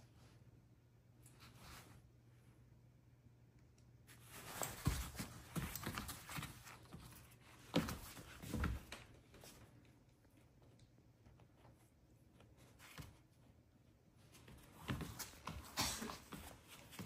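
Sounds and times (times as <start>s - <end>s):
puppy scrambling on fabric mat: 4.2s - 9.6s.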